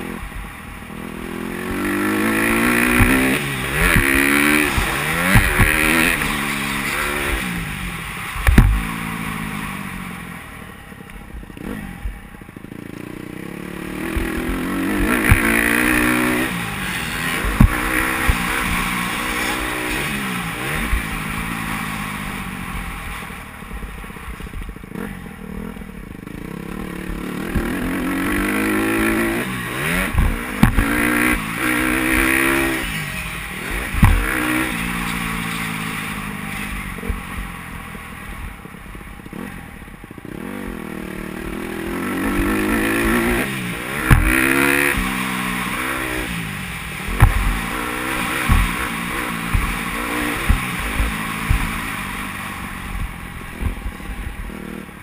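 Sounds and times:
dirt bike engine revving: 0.0 - 10.6, 11.2 - 55.0
sharp knocks: 2.9 - 6.3, 8.4 - 8.8, 30.1 - 31.4, 33.9 - 34.6, 44.0 - 45.2, 48.4 - 48.9.

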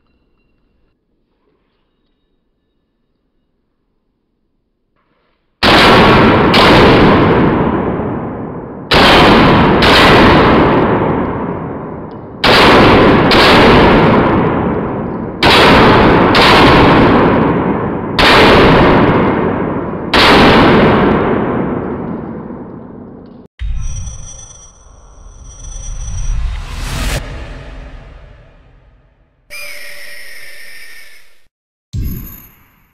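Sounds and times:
pistol shots echoing: 5.6 - 23.2.

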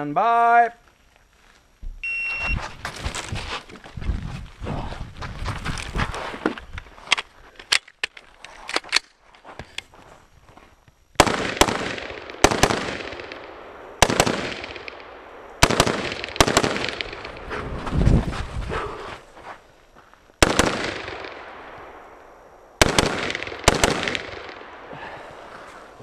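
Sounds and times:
rifle handling clicks: 7.1 - 9.9
rifle shots echoing: 11.2 - 17.4, 20.4 - 22.2, 22.8 - 24.9.

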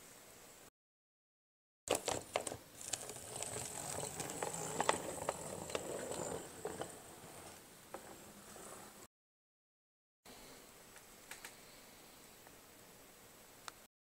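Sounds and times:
model locomotive running: 1.9 - 8.8
wheels clicking over rail gaps: 1.9 - 9.0.

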